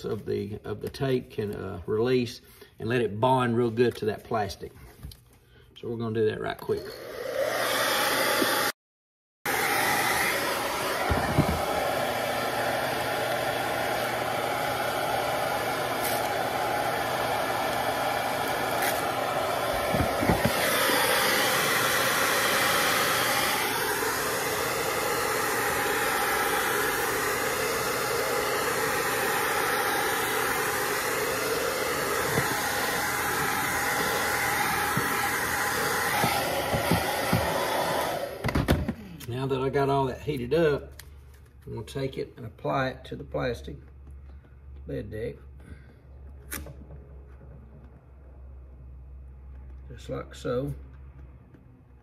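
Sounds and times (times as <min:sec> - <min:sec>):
hair dryer blowing: 0:06.8 - 0:08.8, 0:09.4 - 0:39.2.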